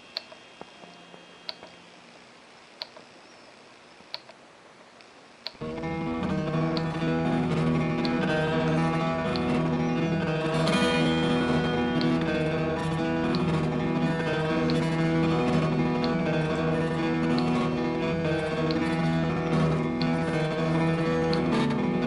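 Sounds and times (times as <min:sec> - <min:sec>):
acoustic guitar music: 0:05.6 - 0:22.0.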